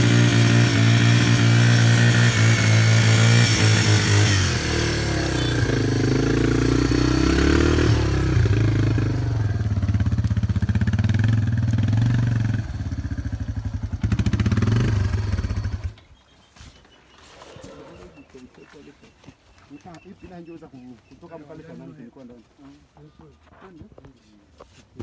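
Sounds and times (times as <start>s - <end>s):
motorcycle engine at low revs: 0.0s - 16.2s.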